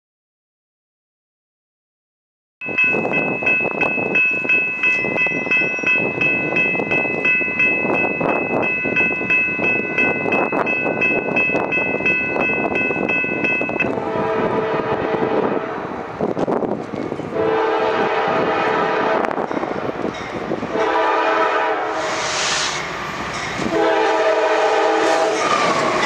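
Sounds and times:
crossing bell ringing: 2.6 - 14.3, 19.4 - 21.8, 23.2 - 26.0
locomotive horn blasts: 13.9 - 16.0, 17.3 - 19.4, 20.7 - 22.4, 23.6 - 25.5.

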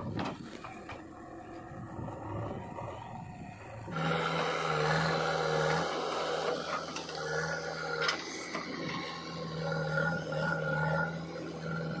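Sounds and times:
diesel engine running: 0.0 - 12.0.

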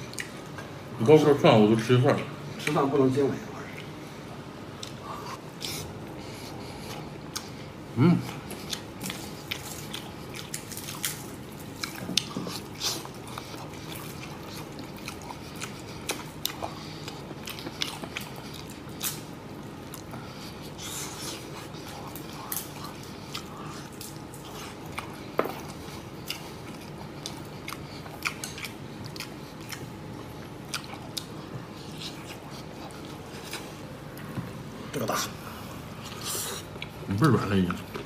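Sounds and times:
wet chewing and lip-smacking: 0.0 - 0.6, 4.8 - 7.7, 8.3 - 35.4, 36.0 - 38.0.

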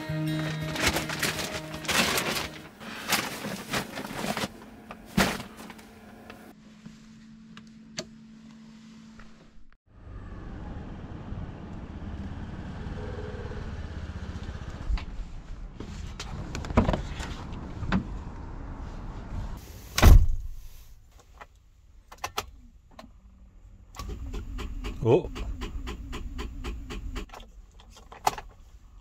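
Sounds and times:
outdoor rumble: 9.2 - 19.6, 22.1 - 29.0
van door slamming: 20.0 - 20.6.

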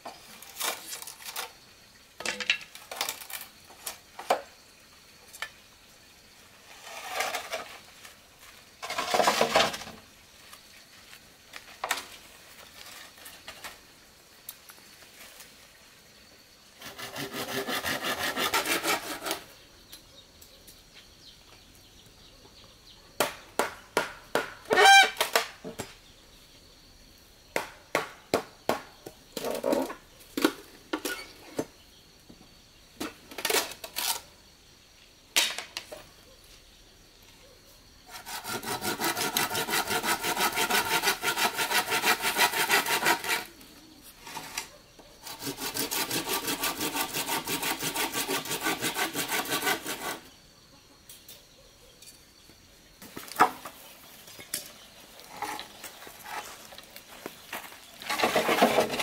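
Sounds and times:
hand saw cutting bamboo: 16.8 - 19.5, 38.1 - 43.6, 45.2 - 50.3.

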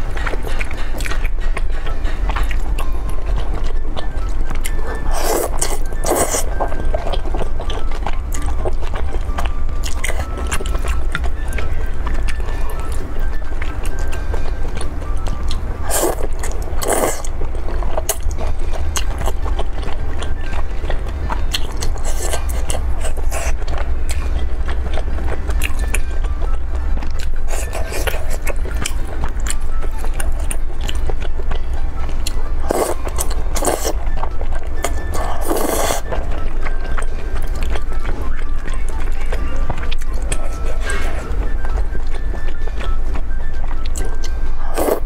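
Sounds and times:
chewing: 0.0 - 45.0
noodle slurping: 4.7 - 6.7, 15.8 - 17.3, 21.9 - 23.6, 32.6 - 34.0, 34.8 - 36.2, 44.7 - 45.0.

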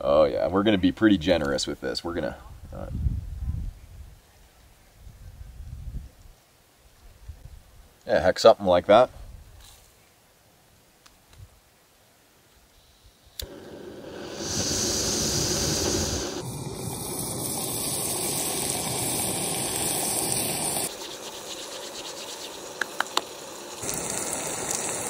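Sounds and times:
stove burner hiss: 12.7 - 25.0
onions sizzling in a pot: 13.4 - 25.0.

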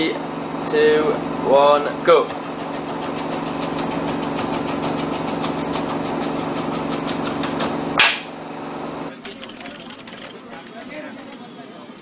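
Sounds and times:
steady mechanical hum: 0.0 - 12.0
knife chopping on plastic board: 2.3 - 8.2.

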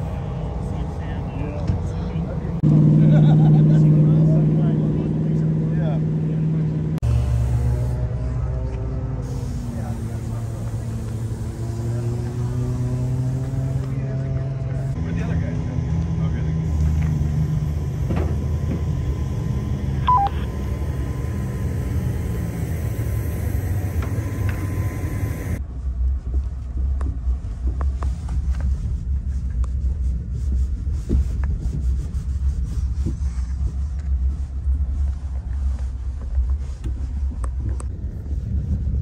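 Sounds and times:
tyres rumbling on rough ground: 9.5 - 25.7
low rumble: 14.4 - 39.0
thin steady hum: 16.7 - 25.6
two-note electronic beep: 20.0 - 20.5.

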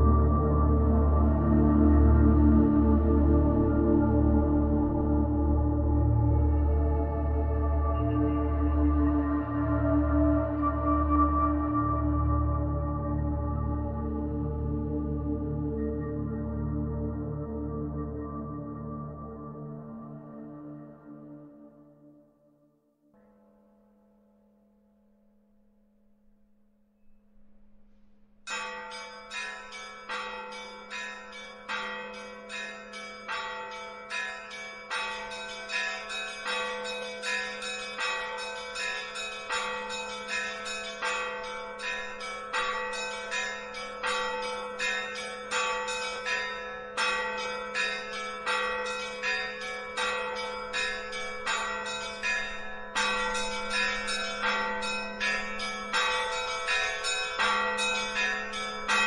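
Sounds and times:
church bells ringing: 0.0 - 13.5, 28.5 - 59.0.

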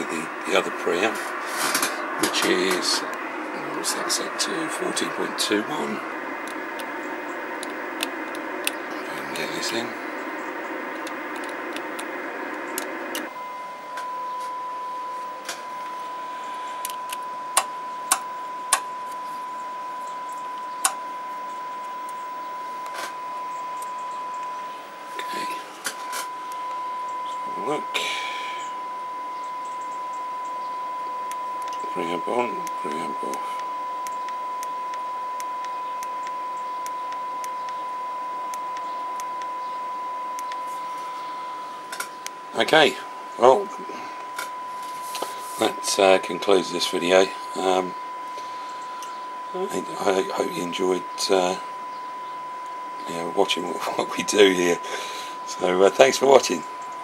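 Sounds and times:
radio receiver hiss: 0.0 - 57.0
steady test tone: 0.0 - 57.0
sharp clicks: 6.4 - 13.3, 20.3 - 21.0.

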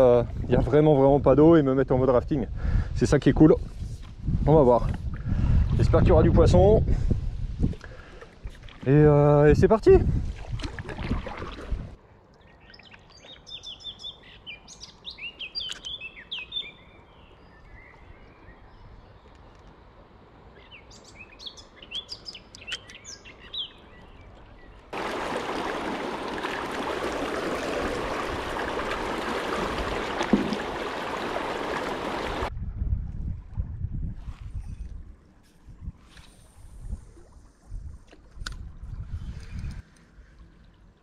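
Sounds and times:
birds chirping: 12.4 - 19.7, 20.5 - 27.3, 28.0 - 32.5
fast-flowing river water rushing: 25.0 - 32.5.

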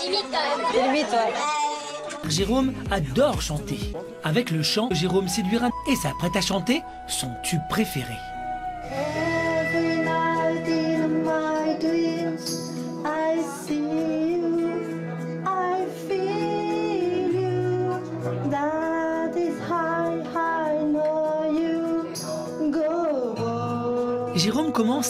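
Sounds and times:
backing track with steady beat: 2.0 - 25.0
person singing into microphone: 8.7 - 25.0.

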